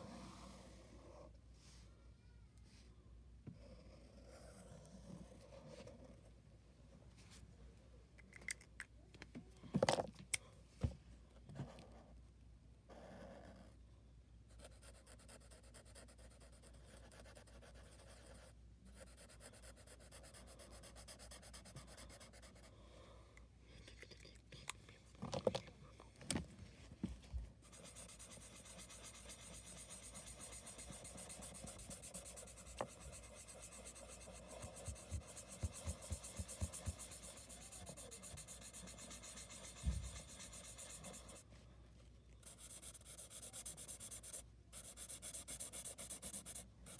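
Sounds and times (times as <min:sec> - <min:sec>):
marker scratching on paper: 0:14.6 - 0:22.7, 0:27.6 - 0:41.4, 0:42.4 - 0:46.9.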